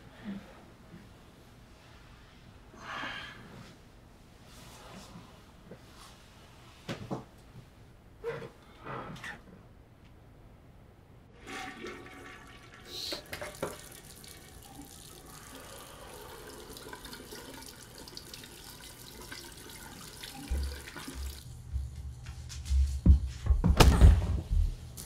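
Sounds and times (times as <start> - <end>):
water running into sink: 11.4 - 21.5.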